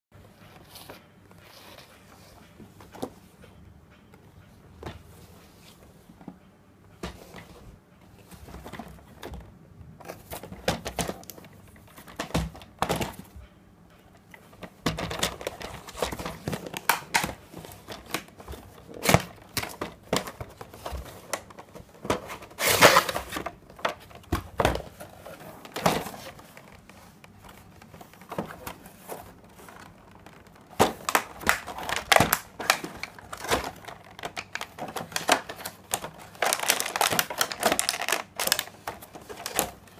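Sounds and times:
cardboard scraping and crinkling: 0:14.6 - 0:39.8
plastic sheet crinkling: 0:25.0 - 0:39.9.

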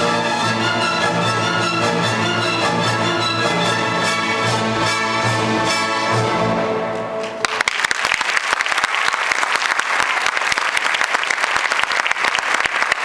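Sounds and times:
orchestral music: 0:00.0 - 0:07.7
audience clapping: 0:07.2 - 0:13.0.

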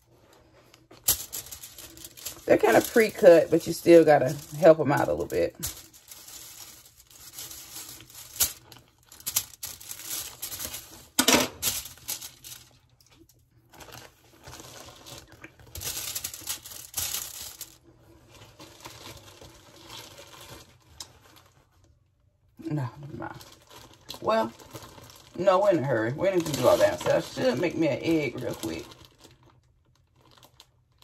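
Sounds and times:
foil crinkling: 0:00.0 - 0:21.9, 0:22.7 - 0:31.0
bread crust crackling and tearing: 0:00.4 - 0:21.8, 0:22.7 - 0:31.0.

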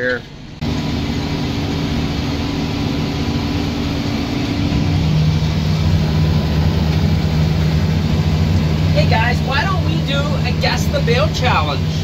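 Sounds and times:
tractor engine running: 0:00.0 - 0:12.0.

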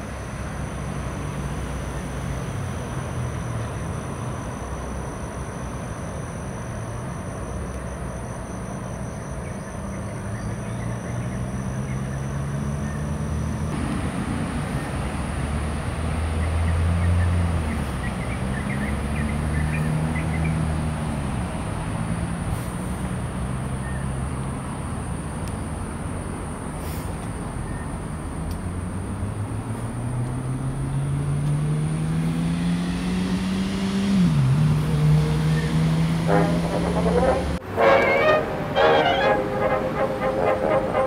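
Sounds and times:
distant road traffic rumble: 0:00.0 - 0:41.0
high-pitched hum: 0:36.1 - 0:41.0.

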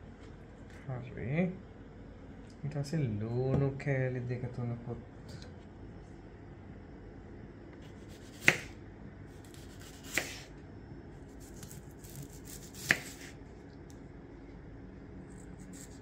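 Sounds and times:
knife slicing onion: 0:07.8 - 0:10.5, 0:11.2 - 0:13.4, 0:15.3 - 0:16.0.

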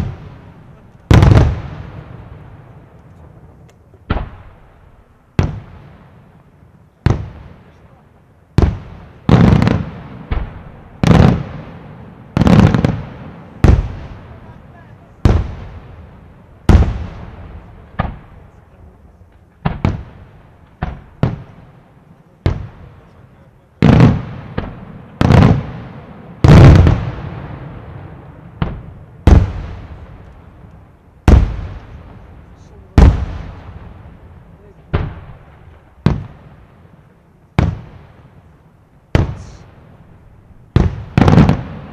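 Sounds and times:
fireworks booming: 0:00.0 - 0:41.9
echo of bangs: 0:04.1 - 0:06.2, 0:19.3 - 0:21.7, 0:23.8 - 0:32.3, 0:34.9 - 0:36.6, 0:37.6 - 0:38.3, 0:39.1 - 0:41.9.

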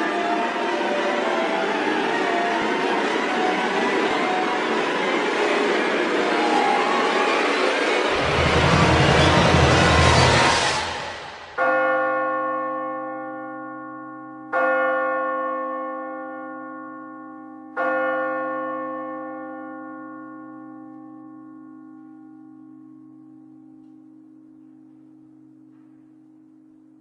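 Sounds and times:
church bell tolling: 0:00.0 - 0:27.0
loud rushing noise: 0:03.6 - 0:11.6.

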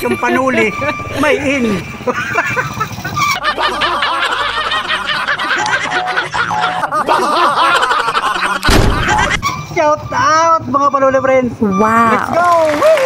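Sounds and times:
honking cackles sound effect: 0:02.0 - 0:09.6.

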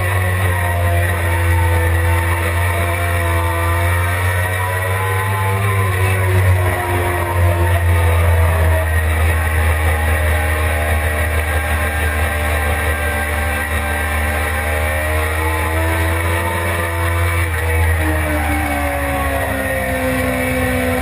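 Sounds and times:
motorcycle engine at high revs: 0:00.0 - 0:21.0.

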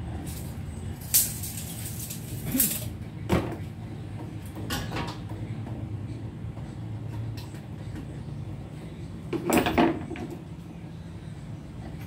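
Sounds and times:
steady low hum: 0:00.0 - 0:12.0
metal parts clanking: 0:00.3 - 0:02.9
metal parts rattling: 0:00.3 - 0:02.9.

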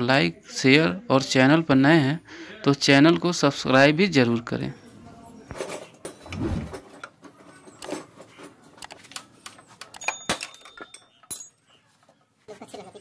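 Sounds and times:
metal tools clinking: 0:09.9 - 0:11.8.

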